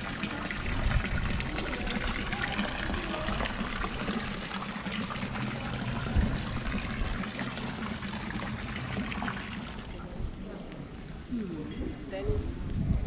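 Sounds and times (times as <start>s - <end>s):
fountain water splashing: 0.0s - 10.0s.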